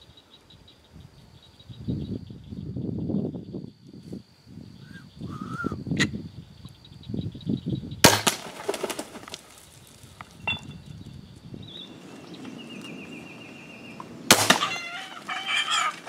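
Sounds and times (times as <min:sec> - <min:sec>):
arrow hitting: 0:08.0 - 0:09.1, 0:14.3 - 0:15.2
hog scrambling over loose rocks: 0:08.1 - 0:10.9, 0:14.3 - 0:16.0.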